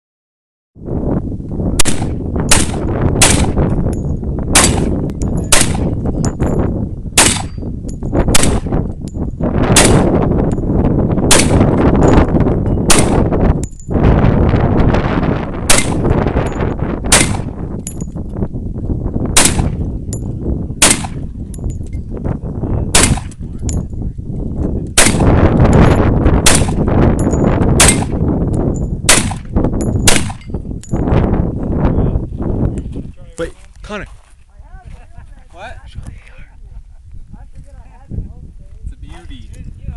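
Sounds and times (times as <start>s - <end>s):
steady low rumble: 0.9s - 33.1s
rifle shots cracking: 1.8s - 3.6s, 4.5s - 6.0s, 7.2s - 7.6s, 8.3s - 8.7s, 9.7s - 10.2s, 11.3s - 11.8s, 12.9s - 13.3s, 15.6s - 16.1s, 17.1s - 17.6s, 19.4s - 19.8s, 20.8s - 21.2s, 22.9s - 23.4s, 25.0s - 25.4s, 26.4s - 26.9s, 27.8s - 28.2s, 29.1s - 30.4s.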